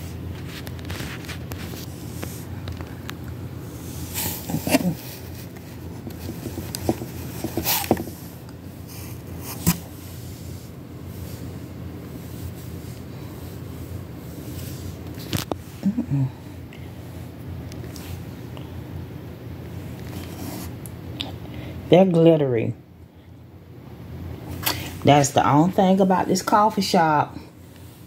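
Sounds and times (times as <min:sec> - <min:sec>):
steady low hum: 0:00.0 - 0:28.0
rustles and light knocks: 0:04.2 - 0:10.0.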